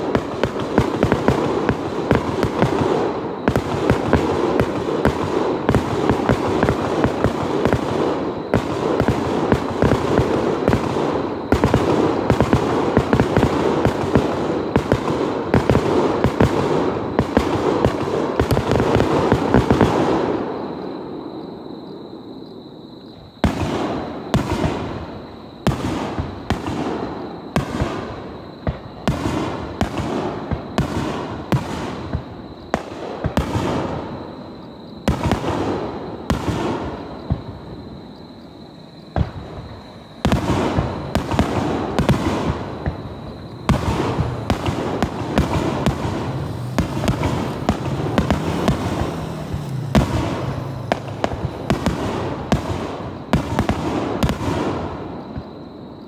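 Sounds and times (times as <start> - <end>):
fireworks bangs and crackling: 0.0 - 56.0.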